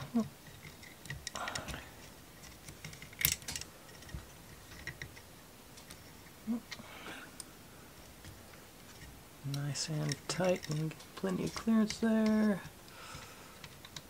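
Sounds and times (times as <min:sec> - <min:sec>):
wooden model parts clicking: 0:00.0 - 0:05.2, 0:08.1 - 0:14.0.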